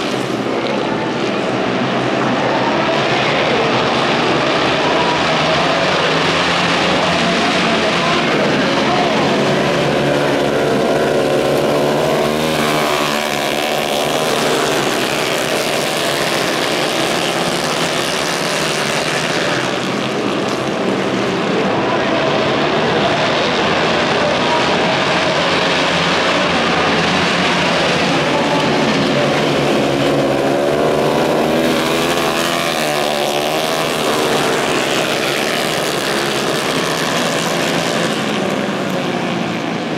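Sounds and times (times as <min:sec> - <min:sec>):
racing motorcycles passing: 0:00.0 - 0:39.9.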